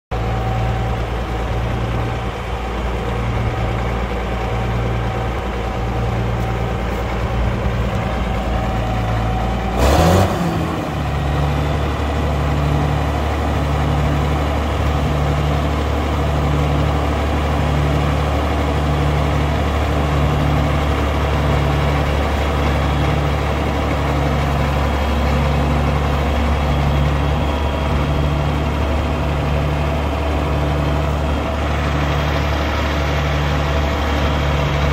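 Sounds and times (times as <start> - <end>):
tractor diesel engine idling: 0.1 - 34.9
loud engine burst falling pitch: 9.3 - 14.8.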